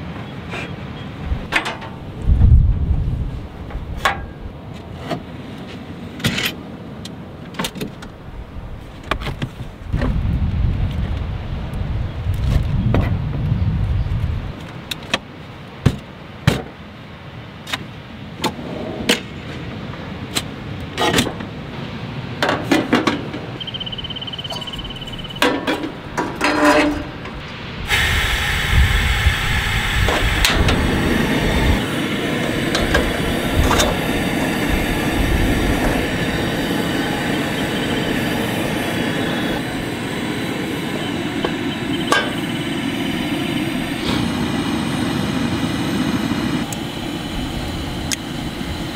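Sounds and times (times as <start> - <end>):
steady rushing noise: 1.2 - 6.2, 21.5 - 48.9
camp kitchen gear clanking: 1.5 - 2.1, 22.4 - 27.4, 41.4 - 42.8.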